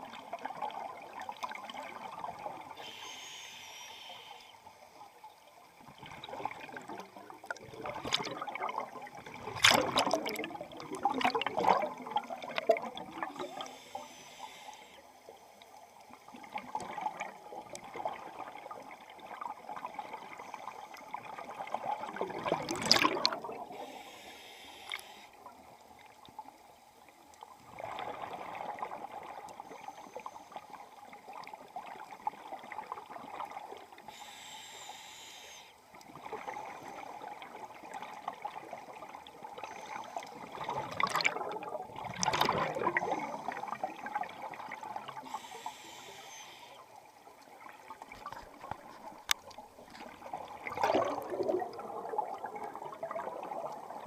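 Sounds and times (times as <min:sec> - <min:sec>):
scuba regulator inhalation hiss: 0:02.7 - 0:05.0, 0:13.2 - 0:15.5, 0:23.7 - 0:25.4, 0:34.0 - 0:35.8, 0:45.1 - 0:47.0
gurgling exhaust bubbles: 0:07.5 - 0:13.4.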